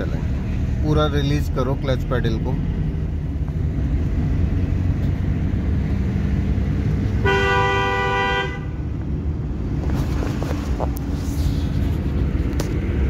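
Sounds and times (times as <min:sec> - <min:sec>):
car engine and tyres rumbling: 0:00.0 - 0:13.0
car horn: 0:07.2 - 0:08.9.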